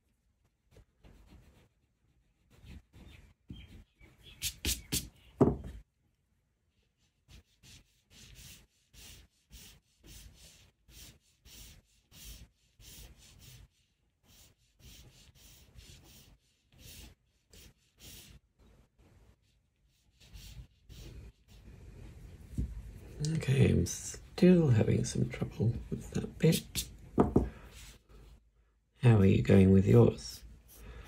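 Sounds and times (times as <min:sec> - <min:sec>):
pencil sketching on paper: 0:00.7 - 0:03.1, 0:06.7 - 0:22.6, 0:27.7 - 0:28.4.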